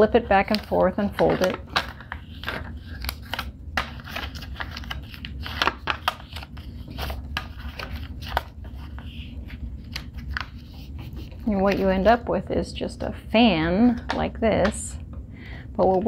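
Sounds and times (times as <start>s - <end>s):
paper crackling as folded: 0.0s - 12.3s.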